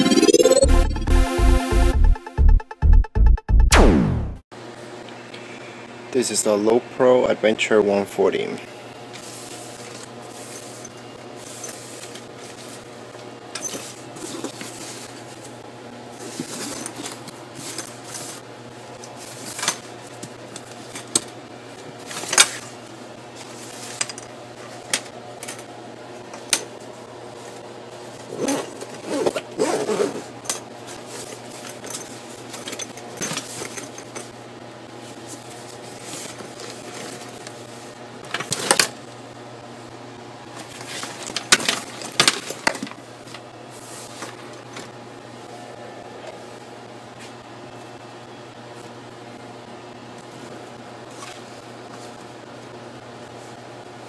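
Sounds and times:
fabric rustling and zipping: 28.3 - 30.3.

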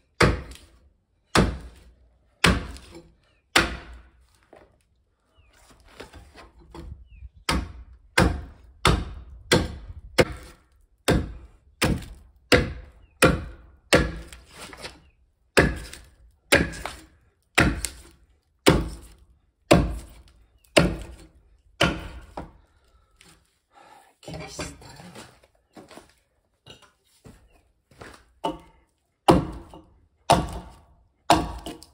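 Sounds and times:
axe chopping wood: 0.2 - 4.1, 6.7 - 22.6, 28.4 - 31.9.

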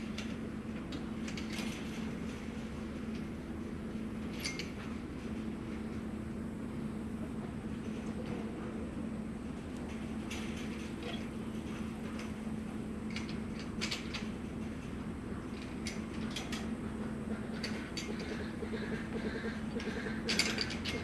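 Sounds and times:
steady low hum: 0.0 - 21.0
chain-link panels clinking and rattling: 4.3 - 4.9, 19.8 - 21.0.

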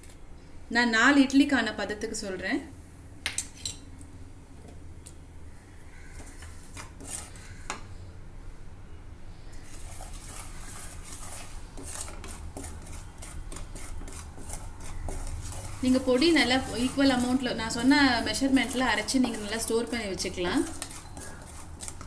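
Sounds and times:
wooden spatula scraping metal pan: 6.2 - 7.6, 9.6 - 22.0.

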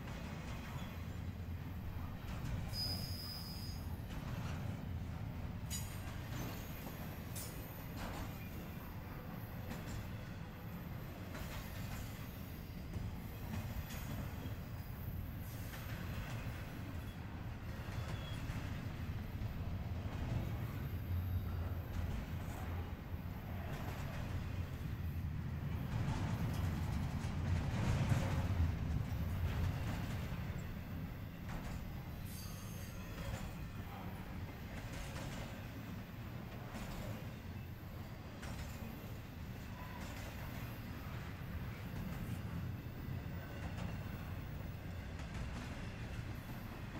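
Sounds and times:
train wheels rumbling on rail: 0.0 - 46.9
high wheel squeal: 2.7 - 3.9.

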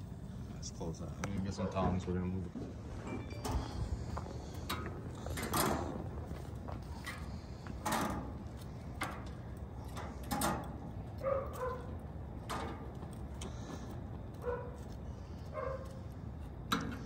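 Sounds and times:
dog barking: 1.5 - 2.0, 11.2 - 12.0, 14.4 - 14.8, 15.5 - 16.0.

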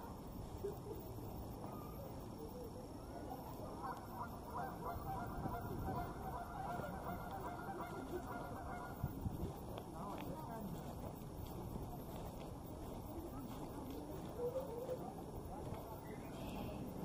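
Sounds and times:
steady low background noise: 0.0 - 17.0
birds calling: 3.0 - 10.8.

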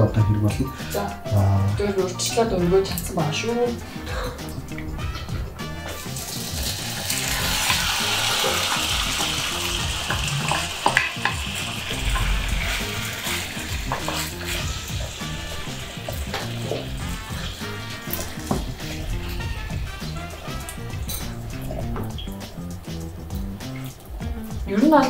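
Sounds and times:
food sizzling in a frying pan: 2.9 - 25.0
utensil clicking against pan: 10.1 - 11.6.

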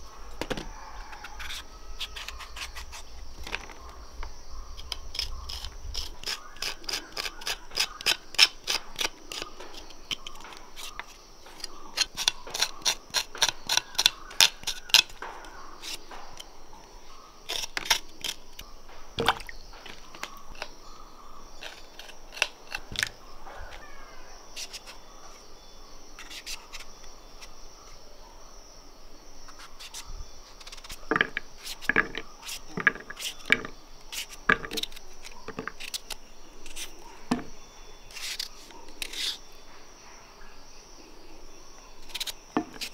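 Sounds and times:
high insect drone: 0.0 - 42.9
knife cutting fruit: 0.4 - 3.1, 4.8 - 16.5.

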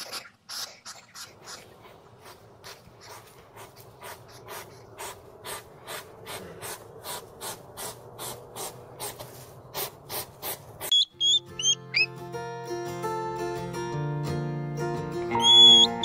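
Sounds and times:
hedgehog huffing and sniffing: 0.0 - 10.9.

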